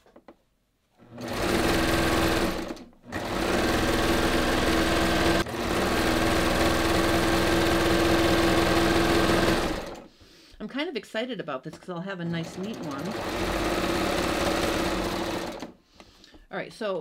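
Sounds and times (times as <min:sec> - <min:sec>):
overlock sewing machine humming: 0:01.0 - 0:10.1, 0:12.3 - 0:15.8.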